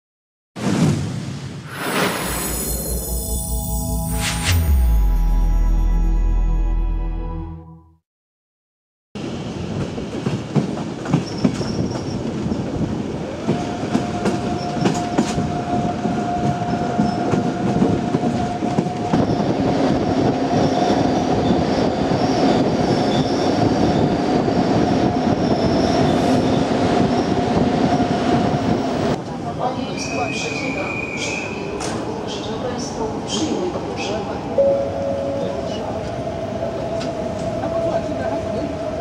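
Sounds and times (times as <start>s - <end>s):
train wheels clattering on rails: 9.6s - 29.3s.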